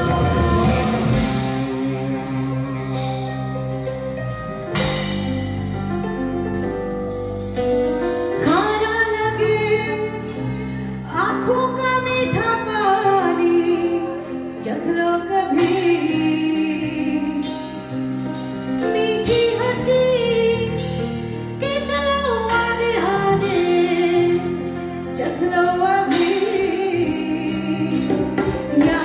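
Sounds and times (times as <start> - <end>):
women singing: 0.0 - 1.4, 21.6 - 29.0
live band music: 0.0 - 29.0.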